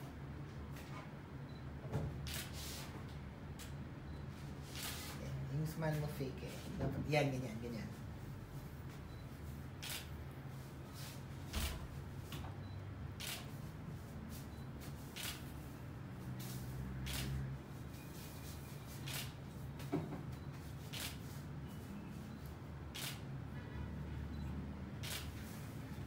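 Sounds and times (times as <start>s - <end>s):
camera shutter clicks: 9.8s - 10.1s, 13.2s - 13.5s, 15.2s - 15.5s, 17.1s - 17.4s, 19.1s - 19.4s, 20.9s - 21.2s, 23.0s - 23.2s, 25.0s - 25.4s.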